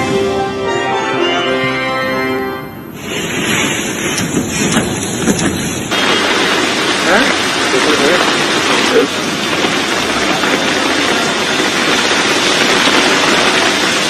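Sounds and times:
theme tune chord: 0:00.0 - 0:02.9
wind: 0:00.0 - 0:14.0
heavy rain: 0:02.8 - 0:14.0.

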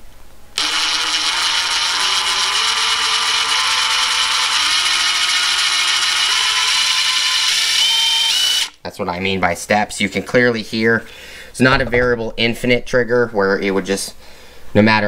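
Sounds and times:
impact driver motor whine: 0:00.6 - 0:08.8.

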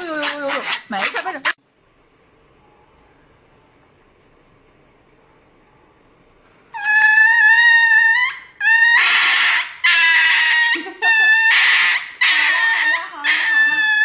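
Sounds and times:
puppy screaming: 0:06.8 - 0:14.0.

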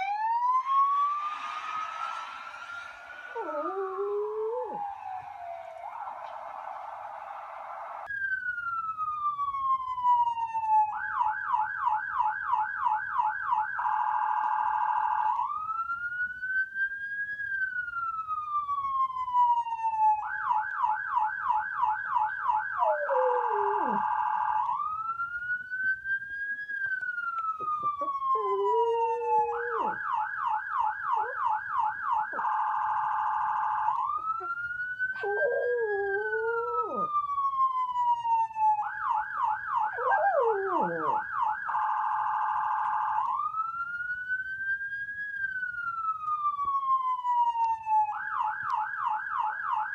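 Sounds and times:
siren wailing and yelping: 0:00.0 - 0:10.9, 0:18.6 - 0:25.2, 0:26.9 - 0:43.9
dog howling: 0:02.0 - 0:06.4, 0:22.8 - 0:24.1, 0:27.9 - 0:30.0, 0:35.2 - 0:37.1, 0:39.8 - 0:41.2.

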